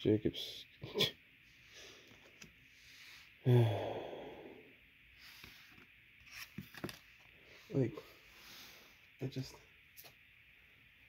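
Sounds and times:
man sighing: 3.4s - 4.7s
trading cards rustling and clicking: 5.4s - 7.2s.

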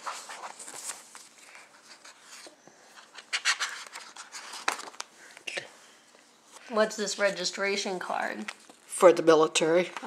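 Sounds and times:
rubbing and rustling of pages: 0.0s - 5.4s.

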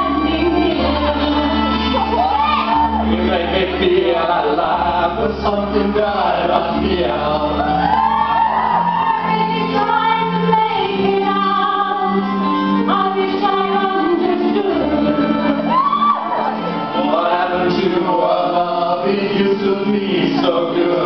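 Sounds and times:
women singing into microphones: 0.0s - 3.8s, 7.6s - 16.6s
pop backing music: 0.0s - 21.0s.

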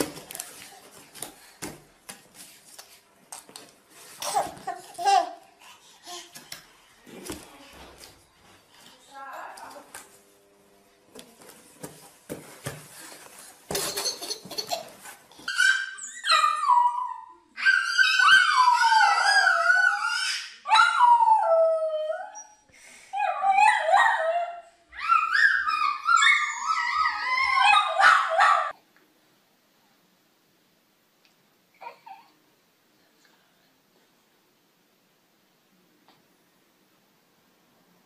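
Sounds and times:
dog howling and yipping: 15.5s - 22.5s, 23.2s - 28.7s.

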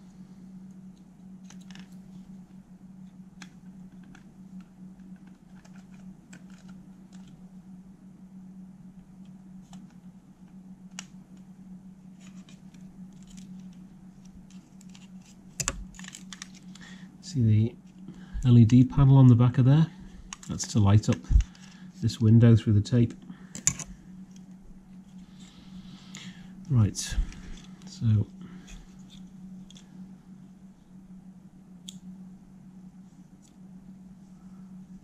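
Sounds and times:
steady low hum: 0.0s - 35.0s
plastic clicks and scratches: 3.4s - 7.4s, 12.2s - 16.8s.

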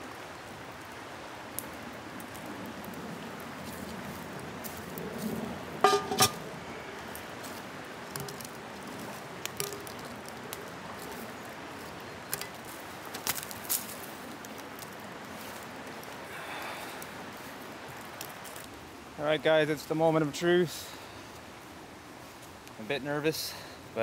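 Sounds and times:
sharp metal clanks: 5.8s - 6.4s.

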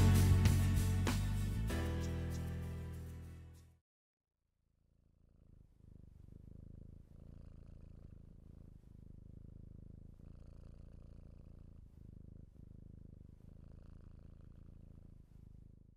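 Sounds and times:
cat purring: 4.9s - 15.9s.

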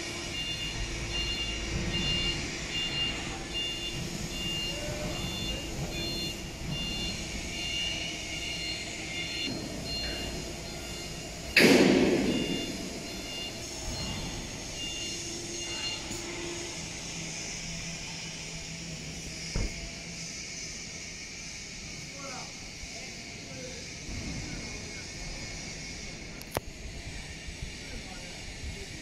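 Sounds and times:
truck engine running: 0.0s - 22.1s
repeating electronic beep: 0.3s - 16.2s
sudden loud burst of noise: 9.3s - 17.6s.

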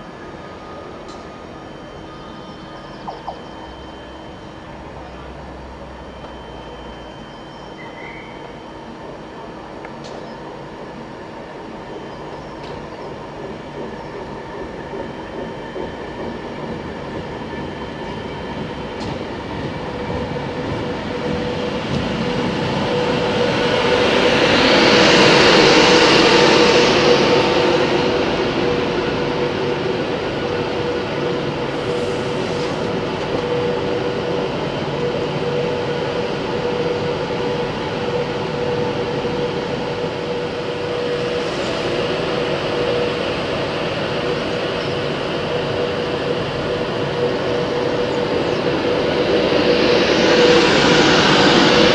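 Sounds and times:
electric train passing: 0.0s - 51.9s.

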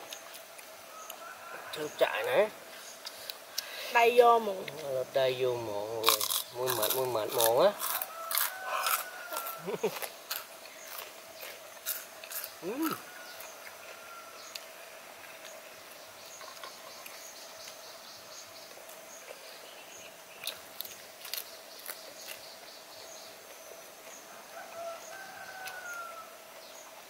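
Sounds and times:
sharp eating clicks: 6.0s - 13.8s, 20.4s - 22.7s.

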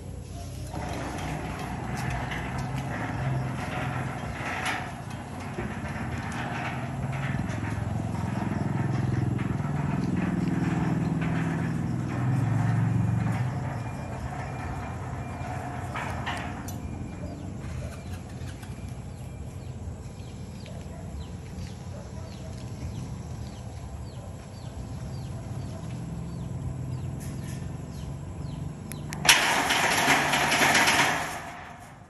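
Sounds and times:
gate motor humming: 0.0s - 32.0s
loud burst of noise: 29.2s - 31.8s.

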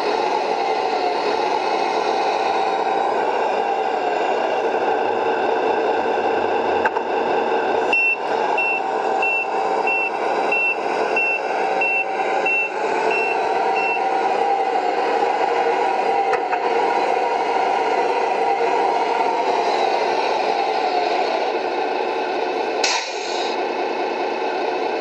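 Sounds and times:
simulated diesel engine sound: 0.0s - 25.0s
reversing warning beeper: 7.8s - 14.1s.

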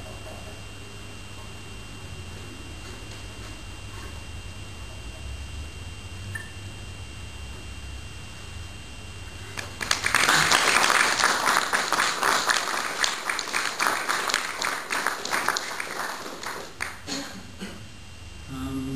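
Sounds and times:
audience applauding: 9.6s - 17.2s.

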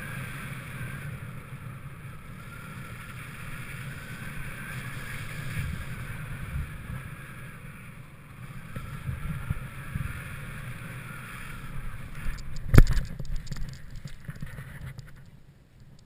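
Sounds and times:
wind buffeting microphone: 8.5s - 16.0s.

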